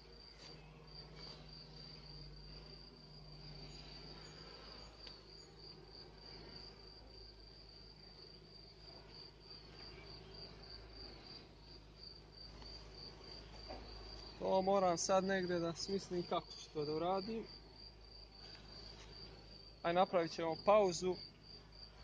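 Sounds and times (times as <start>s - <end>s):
cricket chirping: 0.0s - 22.0s
faint low hum: 0.0s - 22.0s.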